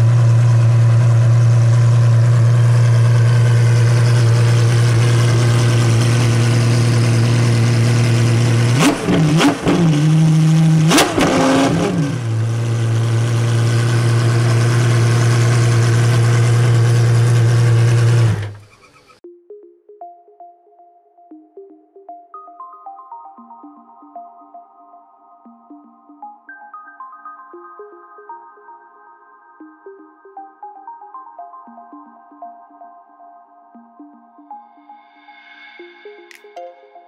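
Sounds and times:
car engine idling and revving: 0:00.0 - 0:19.2.

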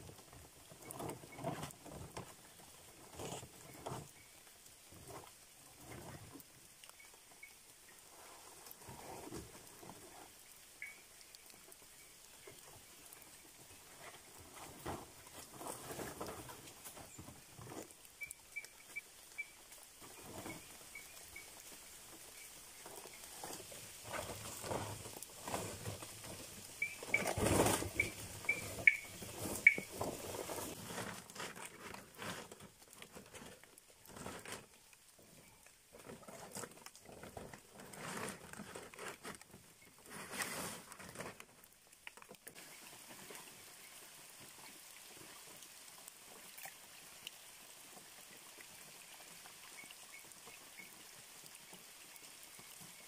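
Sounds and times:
crackles and knocks: 0:00.0 - 0:43.6
palm fronds rustling and scraping: 0:00.0 - 0:53.0
quick high chirping: 0:28.0 - 0:29.9.

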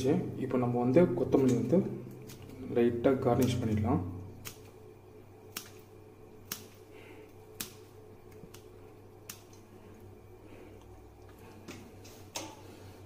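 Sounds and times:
scissors snipping leaves: 0:01.4 - 0:04.8, 0:05.5 - 0:06.9, 0:07.5 - 0:09.7.

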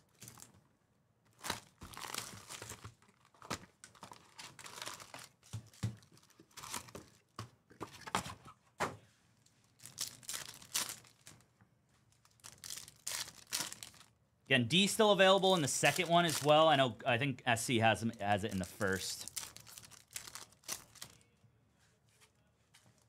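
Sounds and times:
foil wrappers crinkling: 0:01.3 - 0:07.3, 0:09.6 - 0:11.4, 0:12.1 - 0:14.1, 0:15.5 - 0:16.7, 0:18.6 - 0:21.2
foil pack tearing open: 0:12.3 - 0:14.1, 0:19.2 - 0:21.2.

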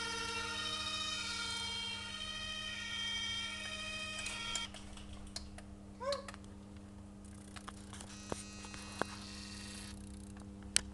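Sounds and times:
low electrical hum: 0:00.0 - 0:10.9.

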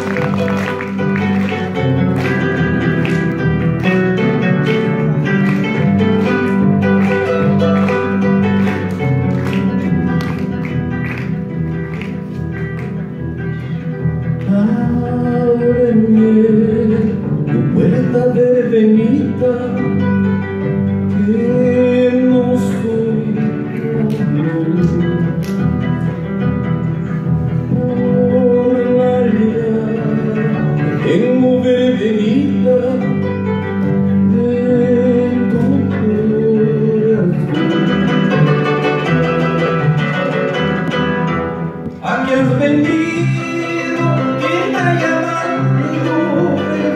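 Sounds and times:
harp plucked notes: 0:00.0 - 0:18.2, 0:32.6 - 0:46.9
person singing: 0:14.4 - 0:20.2, 0:21.0 - 0:25.8, 0:27.1 - 0:40.7, 0:41.9 - 0:46.9.

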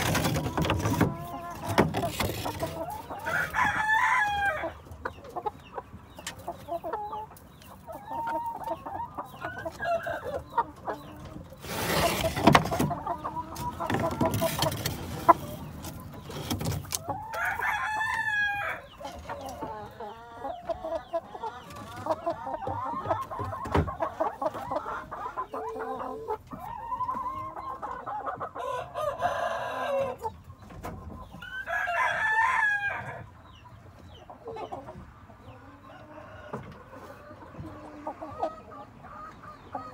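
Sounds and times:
hens clucking: 0:00.0 - 0:39.9
rooster crowing: 0:03.2 - 0:04.8, 0:17.4 - 0:18.9, 0:28.6 - 0:30.2.

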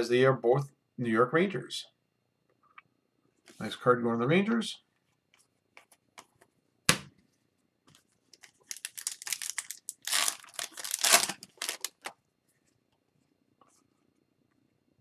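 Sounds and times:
foil wrapper tearing and crinkling: 0:08.4 - 0:12.1.

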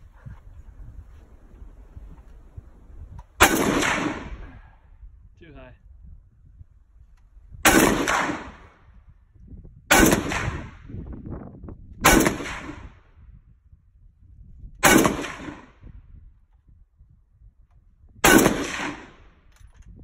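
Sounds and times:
machine gun shots echoing: 0:03.4 - 0:04.6, 0:07.7 - 0:08.8, 0:09.9 - 0:10.8, 0:12.1 - 0:12.9, 0:14.8 - 0:15.7, 0:18.2 - 0:19.2.

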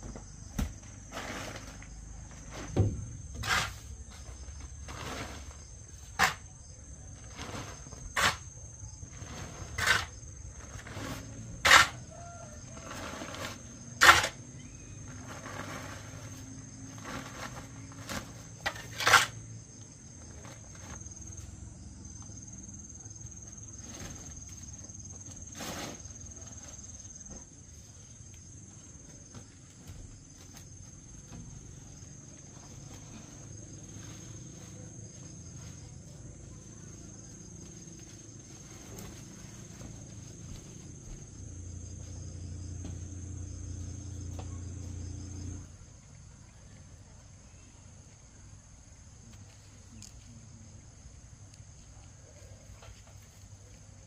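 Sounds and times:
shovel scraping into soil: 0:00.6 - 0:06.6, 0:07.2 - 0:19.4, 0:25.3 - 0:26.5.

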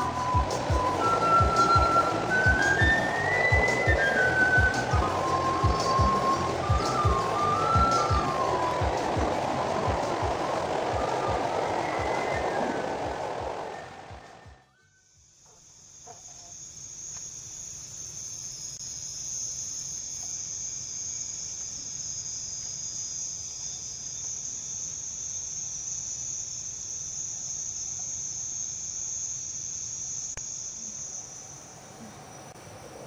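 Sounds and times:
night insects trilling: 0:00.0 - 0:33.0.

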